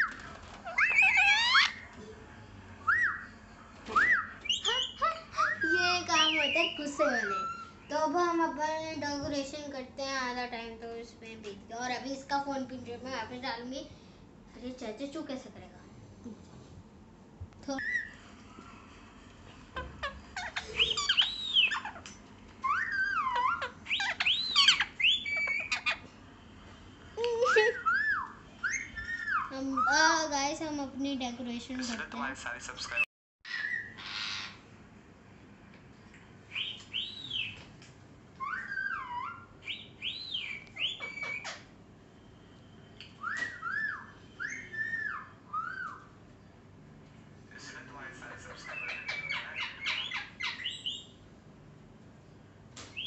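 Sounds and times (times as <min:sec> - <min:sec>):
parakeet squawking: 0:00.0 - 0:01.9, 0:03.9 - 0:08.4, 0:19.8 - 0:26.1, 0:27.4 - 0:30.1, 0:32.9 - 0:34.7, 0:38.4 - 0:41.7, 0:43.5 - 0:46.2, 0:48.3 - 0:51.2
parrot whistling: 0:00.0 - 0:01.9, 0:02.8 - 0:03.3, 0:03.9 - 0:07.8, 0:20.4 - 0:22.0, 0:22.6 - 0:26.0, 0:27.5 - 0:30.0, 0:38.4 - 0:41.7, 0:43.2 - 0:46.2.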